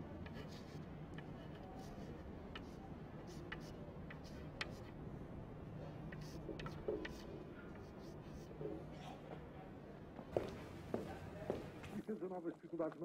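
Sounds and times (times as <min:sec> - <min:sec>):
chalk tapping on blackboard: 0:00.2 - 0:04.9, 0:06.1 - 0:08.5.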